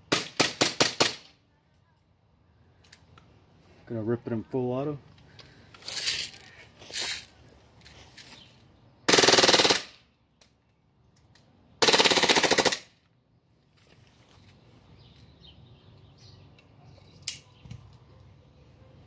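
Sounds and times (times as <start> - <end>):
airsoft pistol firing bursts: 0.1 - 1.3, 9.1 - 10.0, 11.8 - 12.9.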